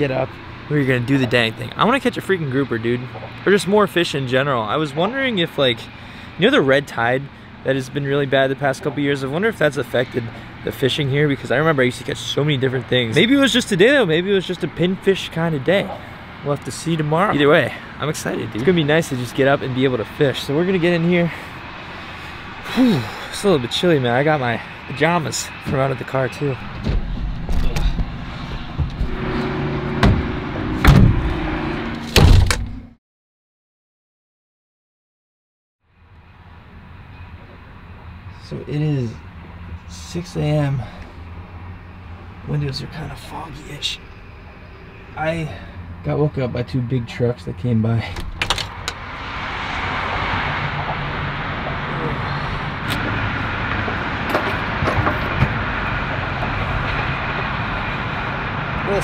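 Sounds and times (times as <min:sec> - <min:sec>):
traffic roar: 0:00.0 - 0:32.9, 0:35.8 - 0:59.0
truck tailgate slamming: 0:29.9 - 0:31.3, 0:32.1 - 0:32.8.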